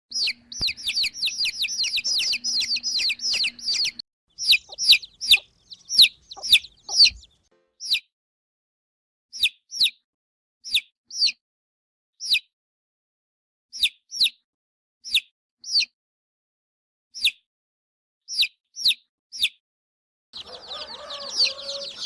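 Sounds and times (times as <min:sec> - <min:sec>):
baby chickens peeping: 0:00.1 - 0:08.1, 0:20.4 - 0:22.0.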